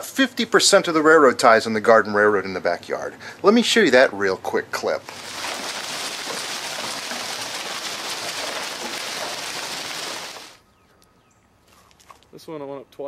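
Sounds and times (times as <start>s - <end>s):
hail and rain pelting ground: 5.1s - 10.6s.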